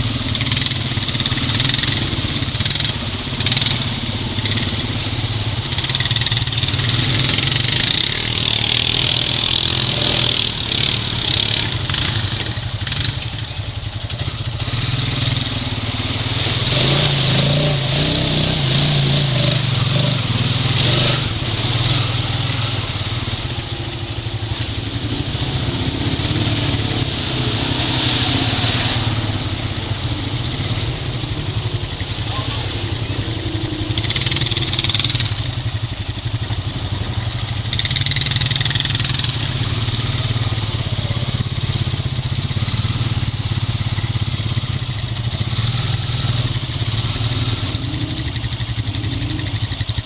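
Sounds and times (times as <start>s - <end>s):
atv engine running: 0.0s - 50.0s
water splashing: 19.7s - 41.6s.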